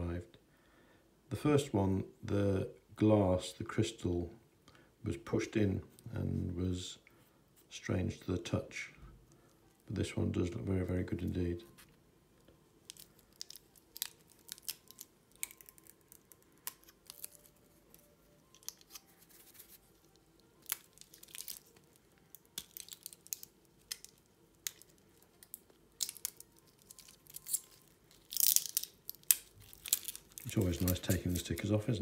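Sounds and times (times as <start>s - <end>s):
plastic stickers peeling: 12.8s - 32.0s.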